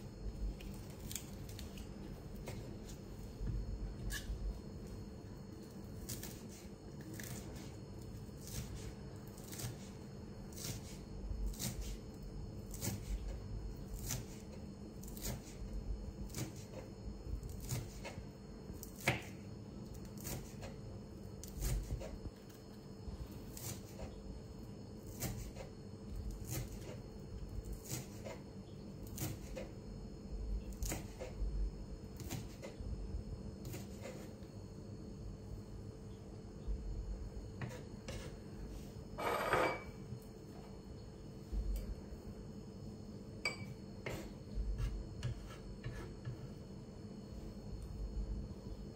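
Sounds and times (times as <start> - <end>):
knife chopping on wooden board: 19.0 - 19.4, 25.1 - 25.7, 30.8 - 31.4, 32.2 - 32.8, 37.6 - 38.4, 43.5 - 46.4.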